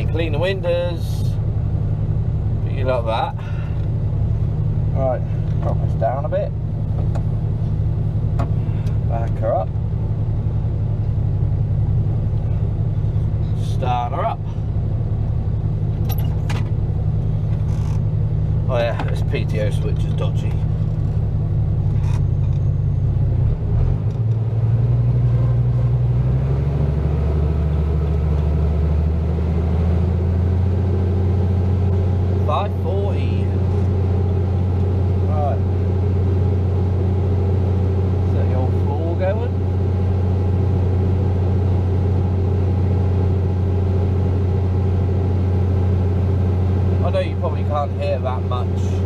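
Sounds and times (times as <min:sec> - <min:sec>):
tractor engine running: 0:00.0 - 0:49.0.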